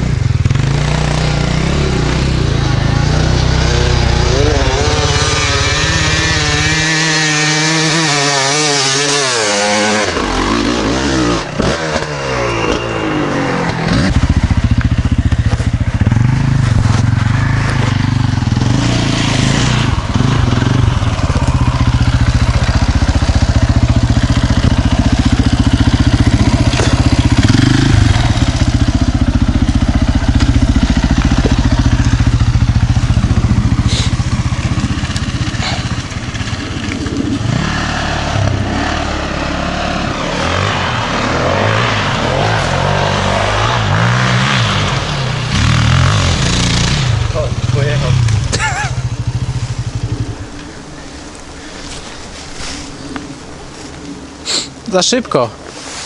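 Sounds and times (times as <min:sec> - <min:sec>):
motorcycle engine revving: 0:00.0 - 0:54.5.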